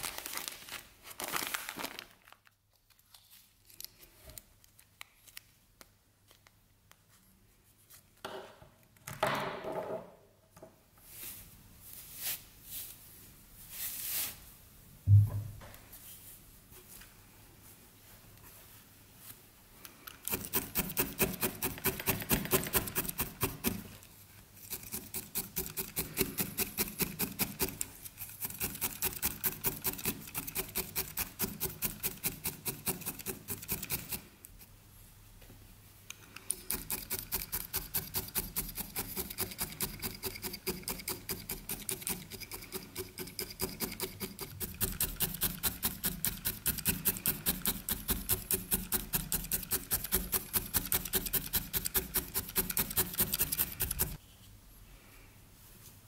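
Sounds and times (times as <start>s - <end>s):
felting needles poking wool: 19.8s - 24.0s, 36.2s - 54.2s.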